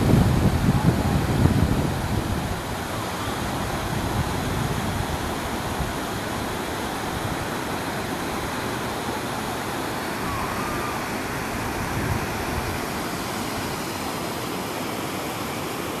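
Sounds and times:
river rapids rushing over rocks: 0:00.0 - 0:16.0.

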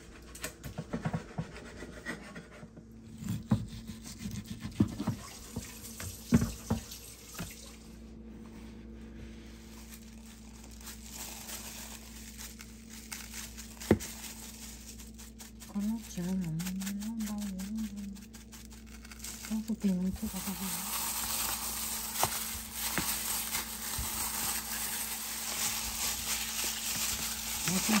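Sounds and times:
water in sink: 0:04.4 - 0:08.0, 0:09.7 - 0:28.0.

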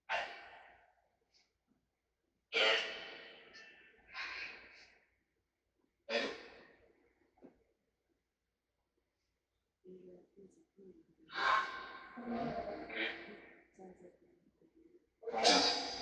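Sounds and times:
echoing voice-like fragments: 0:11.3 - 0:14.2, 0:15.3 - 0:16.0.

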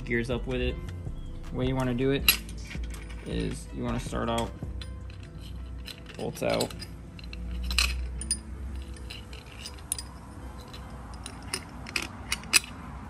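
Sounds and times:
metal parts clinking: 0:02.2 - 0:13.0
roller chain jingling: 0:04.7 - 0:12.9.

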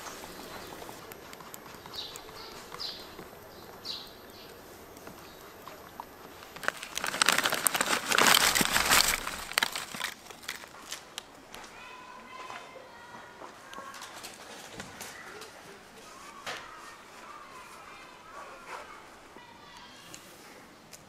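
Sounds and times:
bird chirps: 0:00.0 - 0:05.6
chips poured into wooden bowl: 0:06.6 - 0:10.8.

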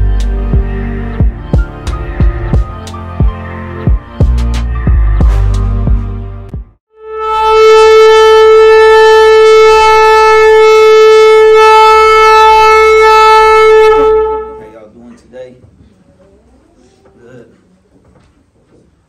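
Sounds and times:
shofar blast: 0:06.9 - 0:14.8.

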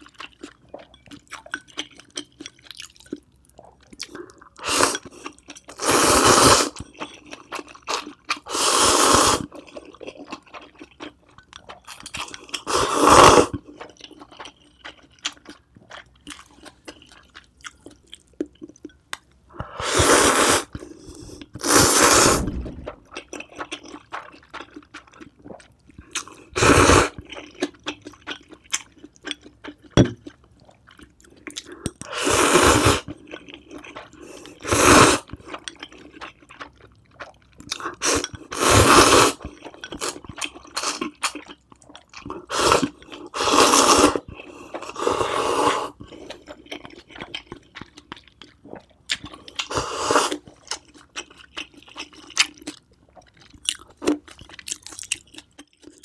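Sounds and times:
wet chewing: 0:00.0 - 0:05.8, 0:09.4 - 0:12.8, 0:13.4 - 0:19.7, 0:20.6 - 0:32.2, 0:33.0 - 0:38.7, 0:39.3 - 0:45.1, 0:45.8 - 0:56.0
slurping noodles: 0:04.6 - 0:05.1, 0:05.7 - 0:06.8, 0:08.4 - 0:09.5, 0:12.5 - 0:13.6, 0:19.6 - 0:23.4, 0:26.5 - 0:27.2, 0:32.0 - 0:33.2, 0:33.8 - 0:35.4, 0:37.7 - 0:40.2, 0:42.4 - 0:46.6, 0:49.6 - 0:50.7.

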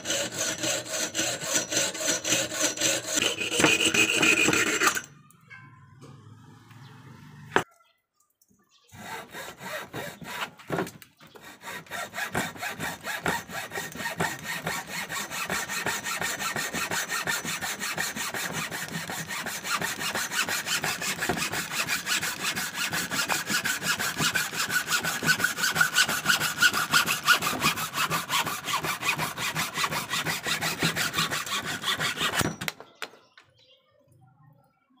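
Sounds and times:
hacksaw cutting wood: 0:00.0 - 0:05.1, 0:09.0 - 0:32.8.

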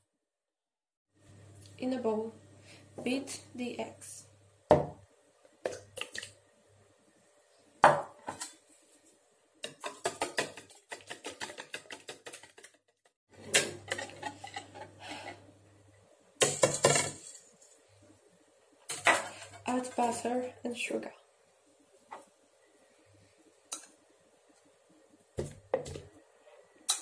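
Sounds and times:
utensil beating eggs in plastic bowl: 0:09.6 - 0:13.2.

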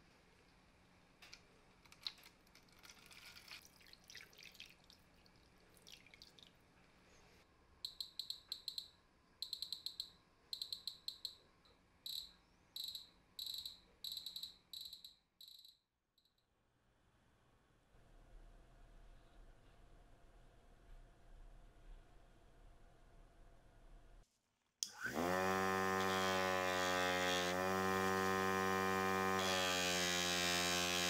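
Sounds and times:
liquid pouring and splashing: 0:02.0 - 0:06.7.

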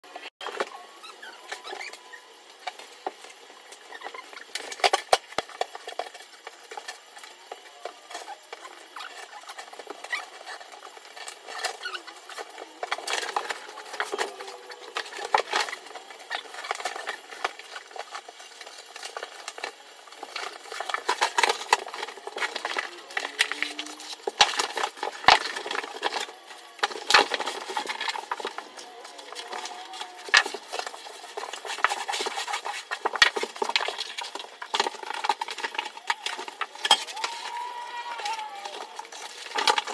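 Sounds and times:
vinyl sheet crackling and rustling: 0:00.1 - 0:39.9.

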